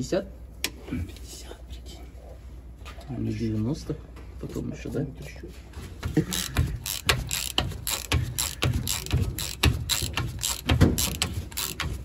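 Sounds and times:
ratcheting wrench clicking: 0:06.3 - 0:12.0.

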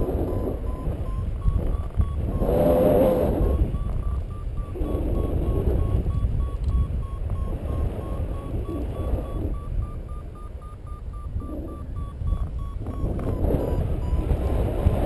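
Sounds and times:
variometer beeping: 0:00.0 - 0:15.0
wind buffeting microphone: 0:00.0 - 0:15.0.

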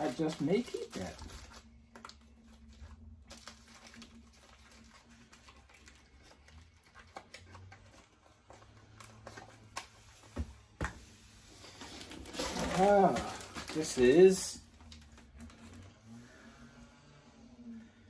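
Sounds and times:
rummaging in cardboard box: 0:11.5 - 0:15.8.

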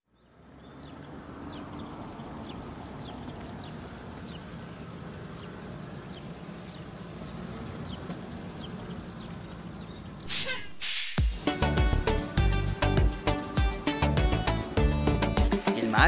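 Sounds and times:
truck engine rumble: 0:00.0 - 0:16.0
bird chirps: 0:00.1 - 0:11.2.

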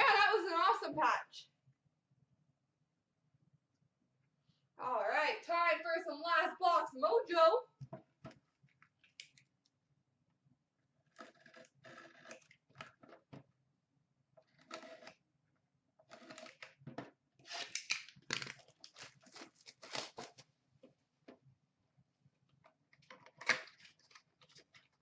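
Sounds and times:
shrink-wrap crinkling and tearing: 0:17.5 - 0:20.4.

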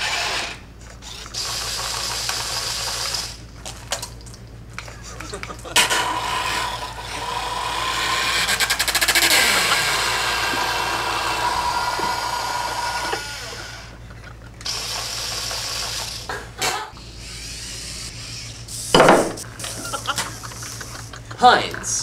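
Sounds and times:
electric gear motors whining: 0:00.0 - 0:03.4, 0:05.3 - 0:16.3, 0:16.9 - 0:19.0
high hissing whir: 0:05.8 - 0:14.0, 0:17.0 - 0:21.2
fast rattle: 0:08.4 - 0:09.7.

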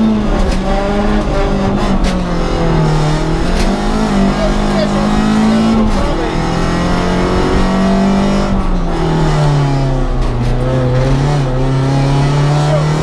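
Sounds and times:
car engine from inside cabin: 0:00.0 - 0:13.0
road and tyre noise: 0:00.0 - 0:13.0.

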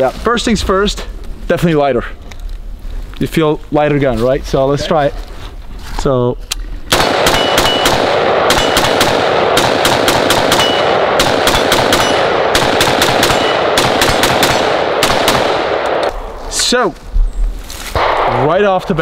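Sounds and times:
rifle firing rapid shots: 0:06.9 - 0:16.1.

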